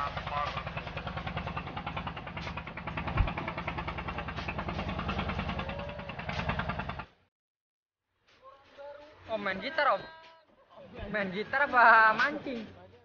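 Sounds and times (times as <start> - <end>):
boat engine running: 0.0 - 7.3.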